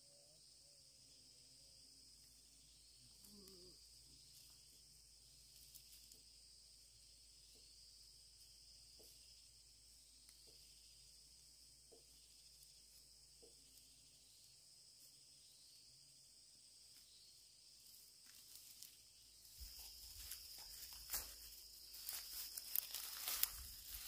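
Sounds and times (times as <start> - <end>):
high insect drone: 0.0 - 24.0
rustling and crunching dry grass: 4.2 - 6.5, 17.8 - 24.0.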